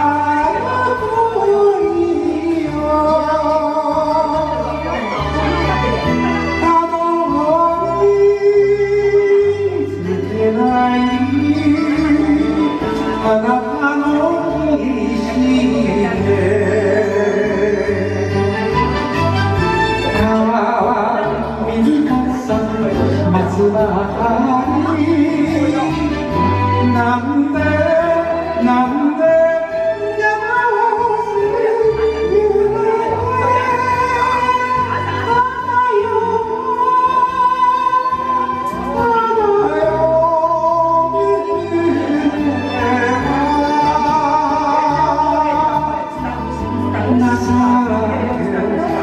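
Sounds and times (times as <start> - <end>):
karaoke backing track: 0.0 - 49.0
person singing a ballad: 0.0 - 49.0
woman singing into a microphone: 26.8 - 49.0.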